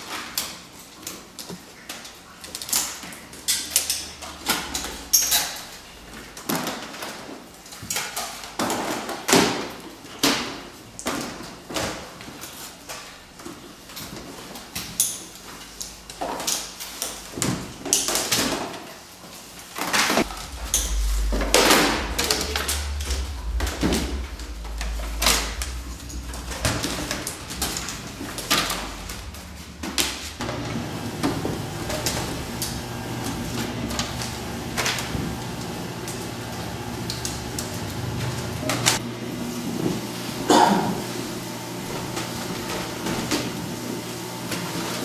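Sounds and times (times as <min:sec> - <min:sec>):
paper shredder motor humming: 0:30.0 - 0:40.4, 0:41.0 - 0:45.0.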